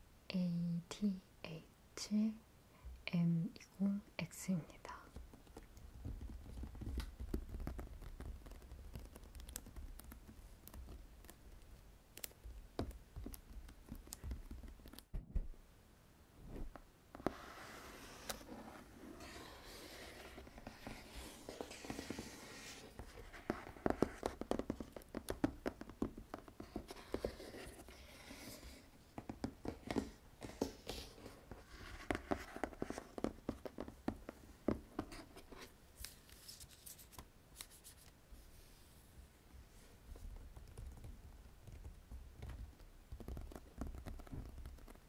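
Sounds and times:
fingertips tapping on cardboard: 5.0 - 15.4, 19.2 - 35.7, 40.1 - 45.0
scratchy rubbing on cardboard: 5.1 - 15.0, 17.1 - 35.7.

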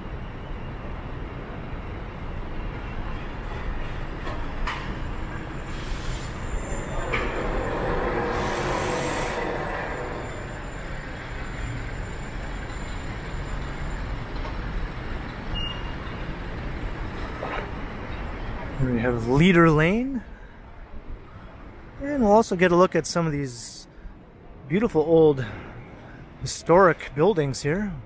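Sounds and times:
city street traffic rumble: 0.0 - 28.0
heavy vehicle passing: 5.6 - 12.3.

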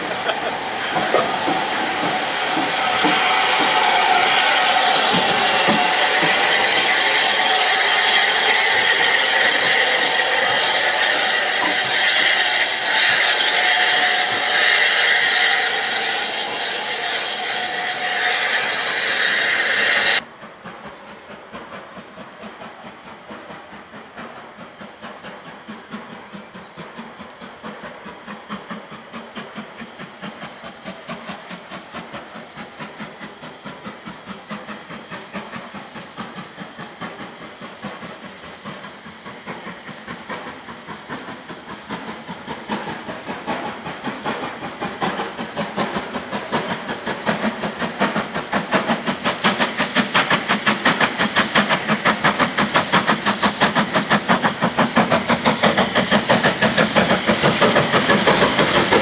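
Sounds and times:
distant steam locomotive chuffing: 0.0 - 59.0
steam locomotive hissing: 0.0 - 59.0.

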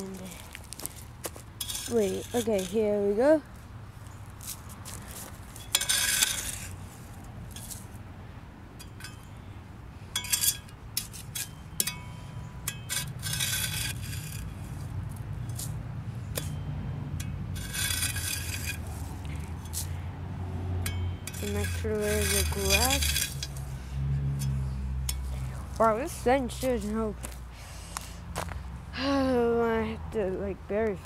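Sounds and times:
digging in gravelly dirt: 0.0 - 8.1, 8.7 - 28.7.

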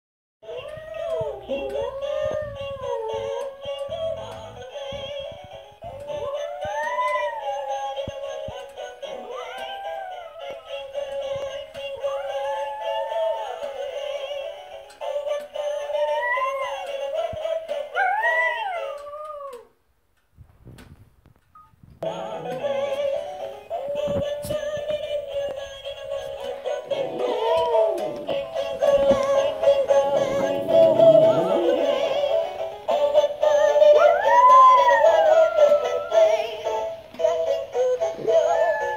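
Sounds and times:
tinny toy carol music: 0.4 - 19.6, 21.4 - 38.9
dog howling: 6.2 - 7.9, 9.4 - 10.8, 12.0 - 13.6, 16.0 - 16.8, 17.9 - 19.7, 34.0 - 36.5, 38.4 - 38.9.

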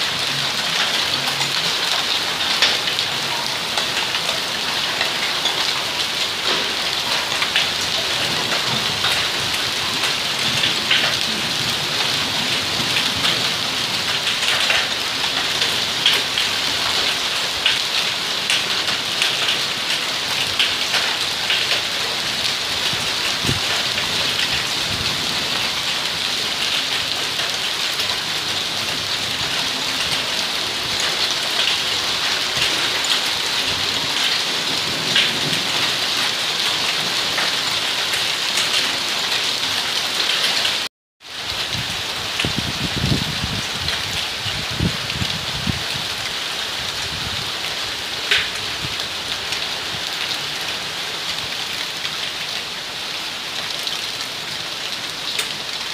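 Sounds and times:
steady downpour: 0.0 - 55.9
hailstones ticking: 0.3 - 39.5, 48.2 - 48.7.

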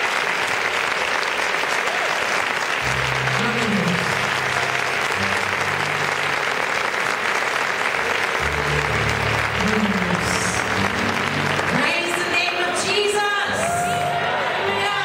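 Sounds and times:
audience applauding: 0.0 - 15.0
low band music: 2.8 - 12.8.

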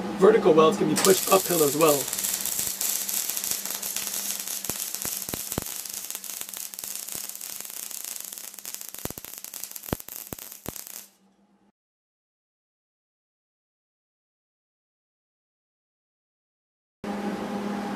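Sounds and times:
spatter popping: 1.0 - 11.1
welding arc crackling and hissing: 1.0 - 11.1.

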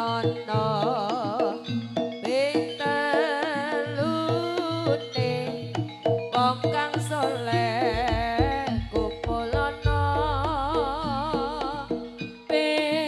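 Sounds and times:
gamelan music: 0.0 - 13.0
deep drum thuds: 7.9 - 11.3.

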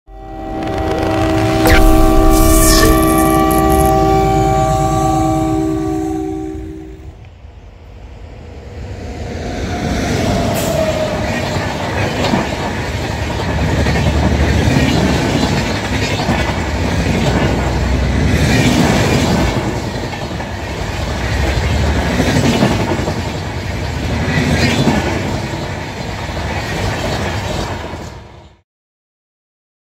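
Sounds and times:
train wheels clattering on rails: 10.5 - 28.4.

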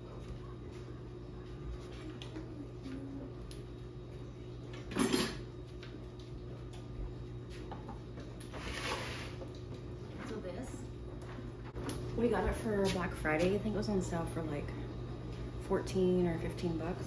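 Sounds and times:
low appliance hum: 0.0 - 17.0
soft scraping or rustling: 8.5 - 9.4.

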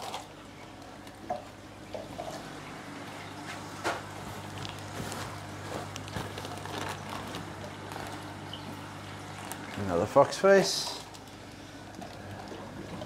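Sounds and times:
steady low hum: 0.0 - 13.0
plastic bags rustling: 4.0 - 11.4.

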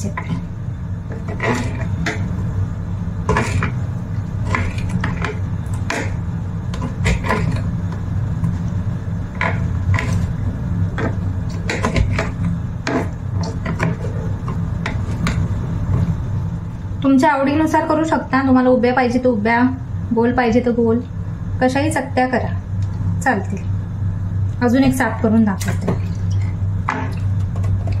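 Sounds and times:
knife scraping: 1.1 - 2.4, 3.3 - 3.8, 4.4 - 7.8, 9.4 - 10.4, 11.0 - 16.1.

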